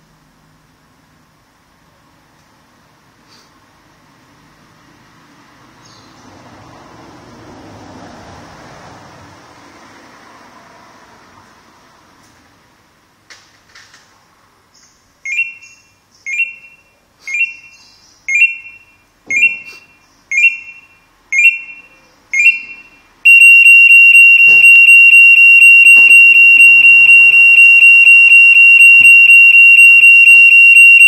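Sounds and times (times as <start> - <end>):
short warning beeps: 15.3 - 31.0
continuous shrill alarm tone: 16.3 - 31.0.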